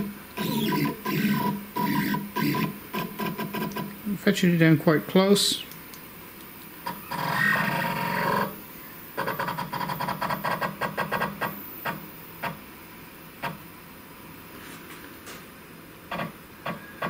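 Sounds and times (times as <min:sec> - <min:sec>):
stepper motor hum: 0:00.0 - 0:04.0
stepper motor stepping buzzes: 0:00.0 - 0:04.1, 0:06.8 - 0:12.7.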